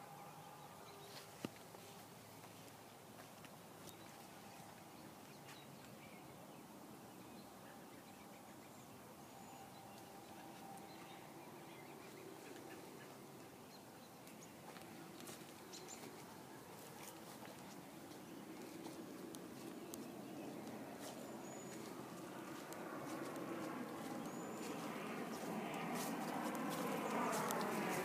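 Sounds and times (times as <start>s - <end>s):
faint bird chirps: 7.3s - 14.5s.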